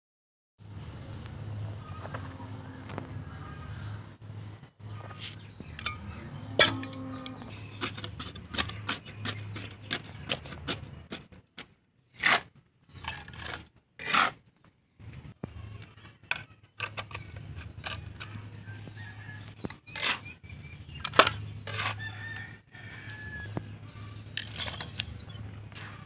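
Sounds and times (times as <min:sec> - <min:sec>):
ringing clink against metal pot: 0:06.6 - 0:07.0
hands scooping soil: 0:07.2 - 0:14.4, 0:19.8 - 0:23.3, 0:24.2 - 0:26.0.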